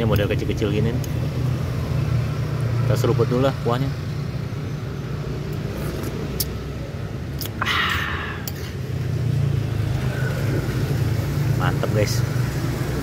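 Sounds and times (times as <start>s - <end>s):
person slurping broth: 7.4s - 8.8s.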